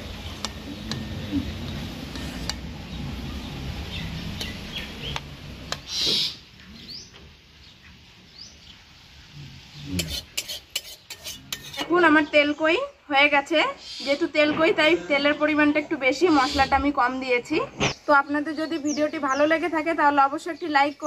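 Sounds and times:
small birds chirping faintly: 0.0s - 21.0s
spatula scraping a wok: 1.8s - 2.6s, 9.9s - 12.0s.

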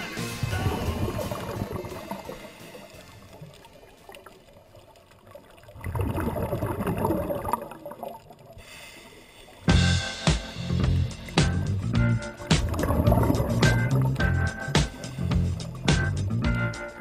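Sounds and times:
underwater exhaust bubbles gurgling: 0.4s - 9.9s, 10.7s - 16.7s.

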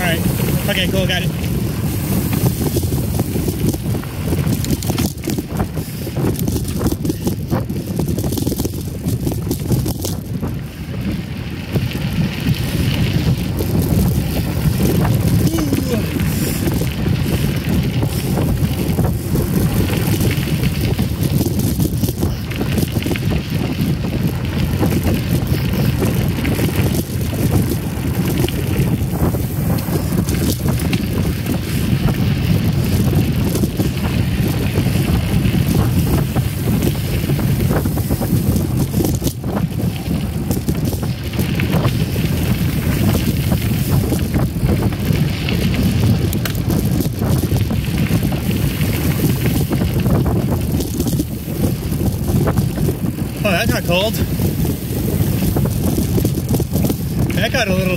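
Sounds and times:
bike clicks and rattles: 0.0s - 57.9s
bike tyres rolling on dirt: 0.0s - 57.9s
wind rumble on microphone: 0.0s - 57.9s.

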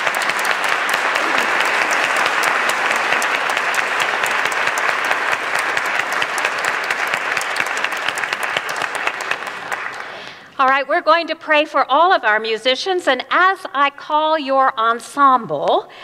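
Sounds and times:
crowd applauding: 0.0s - 10.4s.

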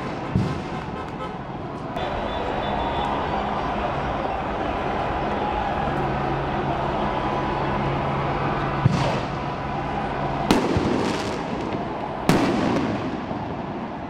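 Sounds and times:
fireworks bangs with crackle: 0.0s - 0.8s, 8.8s - 9.4s, 10.5s - 14.0s
street noise: 0.0s - 14.0s.

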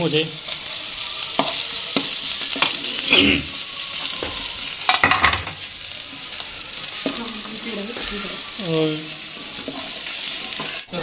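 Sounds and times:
onions sizzling in oil: 0.0s - 11.0s
spatula scraping a pan: 0.4s - 11.0s.

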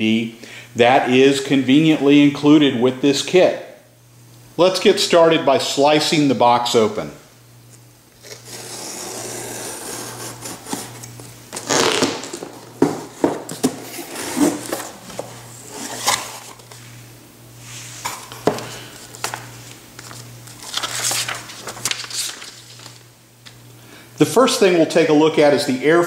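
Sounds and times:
knife scraping cardboard: 8.2s - 11.2s, 13.2s - 16.4s.

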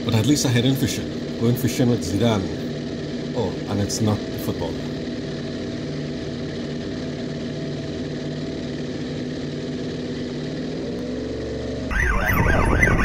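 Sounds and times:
outboard motor running: 0.0s - 13.0s
wavering high tone: 11.9s - 13.0s.

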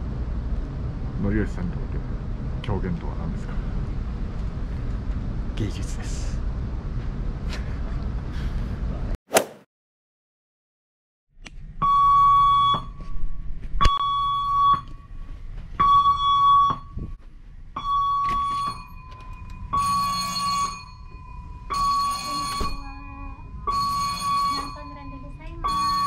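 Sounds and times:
electronic alarm tone blaring: 15.8s - 17.0s, 17.8s - 26.0s.

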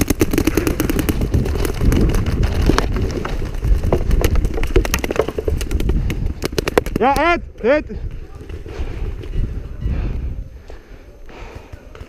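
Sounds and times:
camera jostling rumble: 0.0s - 7.2s.

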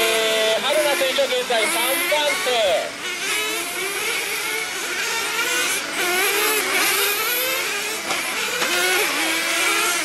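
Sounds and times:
rc car engines whining: 0.0s - 10.0s.

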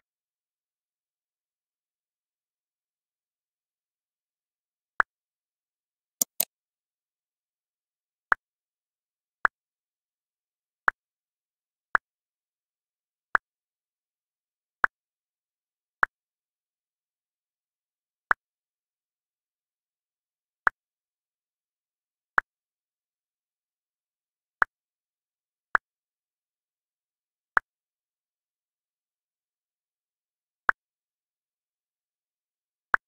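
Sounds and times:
on-screen keyboard key click: 6.2s - 6.5s
sharp double click: 6.2s - 6.5s.

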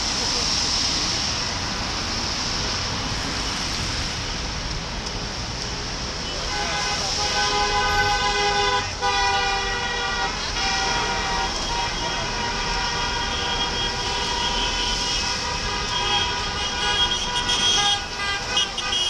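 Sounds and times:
street traffic rumble: 0.0s - 19.0s
car horns honking: 6.2s - 19.0s.

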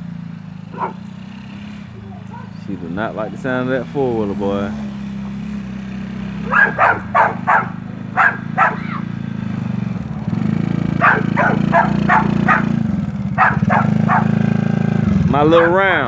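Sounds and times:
quad bike engine running: 0.0s - 16.0s
dog barking: 0.7s - 1.1s, 2.1s - 2.6s, 6.4s - 9.2s, 11.0s - 12.8s, 13.4s - 14.4s, 15.5s - 15.8s.

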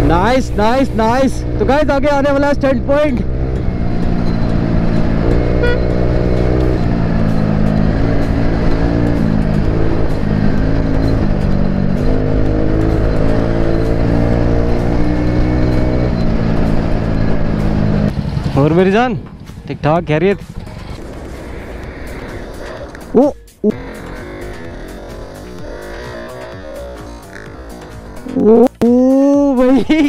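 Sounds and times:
scooter engine drone: 0.0s - 30.0s.

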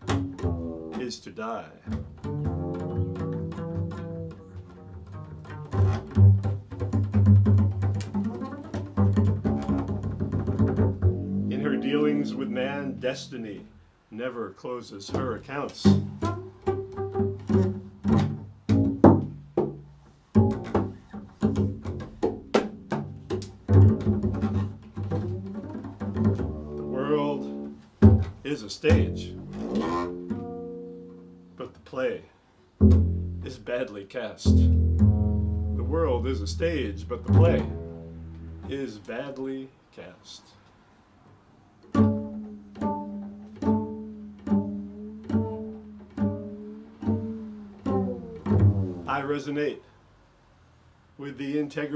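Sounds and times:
double bass plucked notes: 0.0s - 14.3s, 15.0s - 32.1s, 32.7s - 39.5s, 41.8s - 49.6s.

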